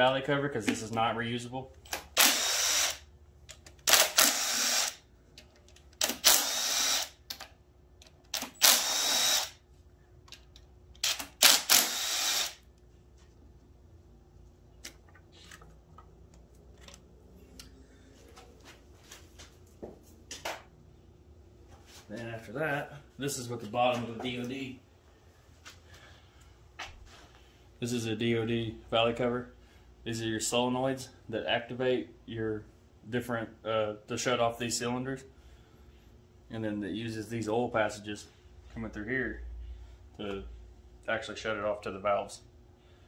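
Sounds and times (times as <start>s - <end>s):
cordless power driver whirring: 2.2s - 3.0s, 3.8s - 5.0s, 6.0s - 7.2s, 8.3s - 9.6s, 11.0s - 12.7s.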